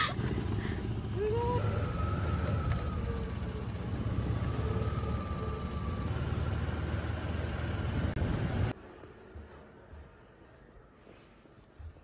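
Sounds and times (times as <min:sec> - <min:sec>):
tyres on road: 0:00.0 - 0:12.0.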